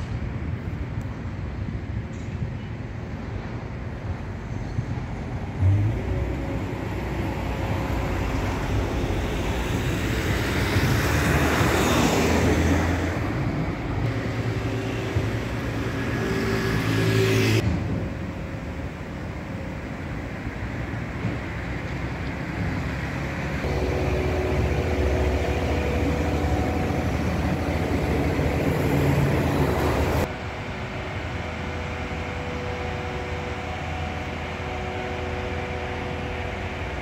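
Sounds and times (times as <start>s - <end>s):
steady engine hum: 0.0s - 37.0s
motor vehicle passing: 5.5s - 17.6s, 22.0s - 30.3s.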